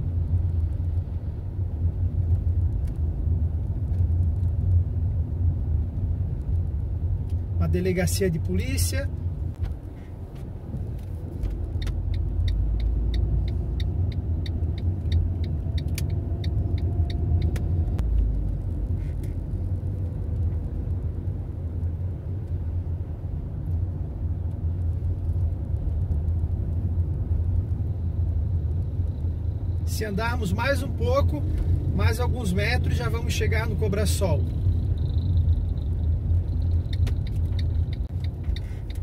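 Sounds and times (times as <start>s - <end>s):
car road and engine rumble: 0.0s - 39.0s
quick evenly spaced ticks: 11.5s - 17.9s, 34.4s - 39.0s.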